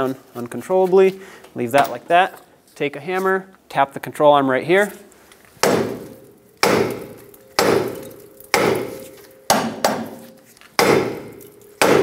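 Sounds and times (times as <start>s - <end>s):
hammer striking metal: 5.6s - 12.0s.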